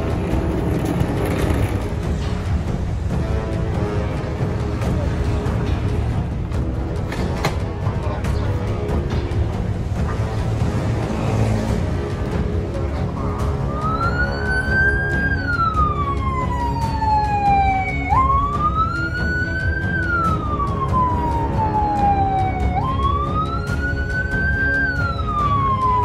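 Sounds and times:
background music: 0:00.0 - 0:26.0
ambulance siren wailing: 0:13.1 - 0:26.0.

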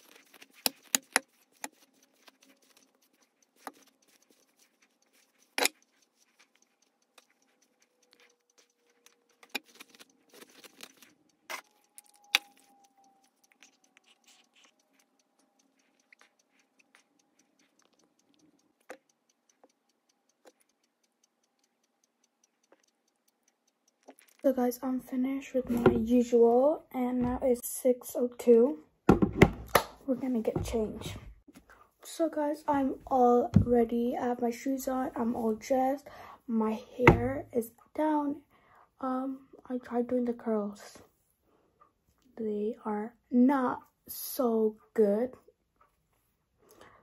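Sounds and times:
small objects clicking and rattling: 0:00.0 - 0:19.1, 0:23.9 - 0:24.5.

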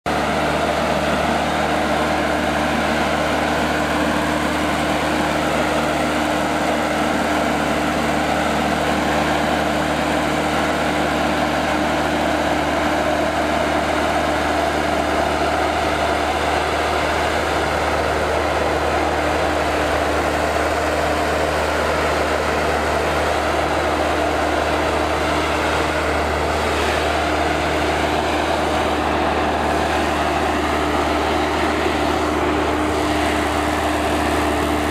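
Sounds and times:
harvester engine droning: 0:00.0 - 0:34.9.

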